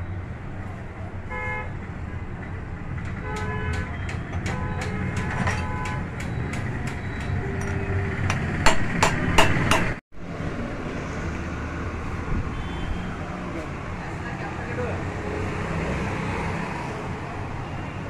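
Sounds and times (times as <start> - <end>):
street traffic hum: 0.0 - 18.0
car horns tooting: 3.2 - 6.2
hammer striking metal: 3.3 - 10.0.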